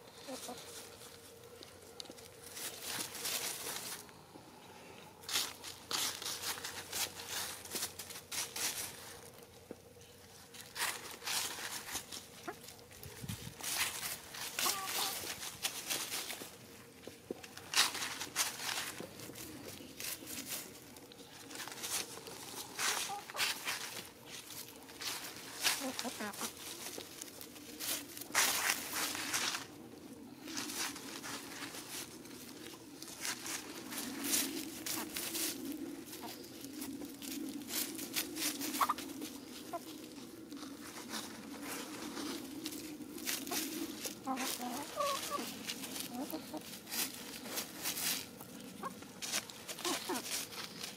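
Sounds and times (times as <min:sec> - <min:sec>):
chickens scratching dry leaves: 0:00.0 - 0:50.9
steady low hum: 0:00.0 - 0:50.9
soft chicken clucks: 0:00.1 - 0:01.8, 0:13.7 - 0:16.2, 0:21.4 - 0:27.0, 0:38.4 - 0:40.0, 0:42.2 - 0:47.0, 0:47.9 - 0:50.7.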